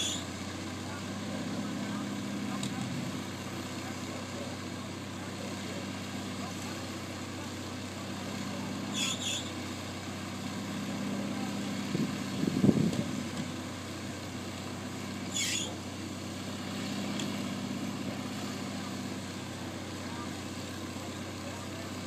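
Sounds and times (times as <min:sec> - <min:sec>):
backhoe engine running: 0:00.0 - 0:22.0
high squeaks: 0:08.9 - 0:09.5, 0:15.3 - 0:15.8.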